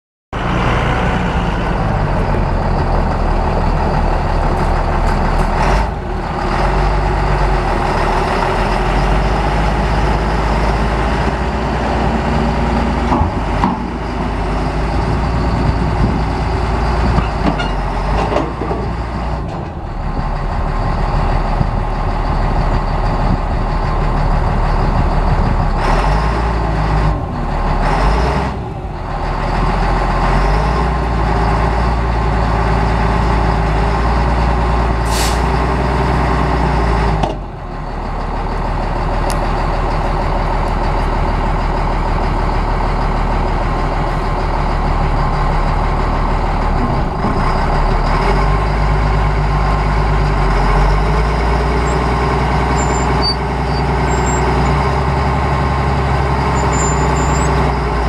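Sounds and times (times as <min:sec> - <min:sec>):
diesel engine running: 0:00.4 - 0:58.0.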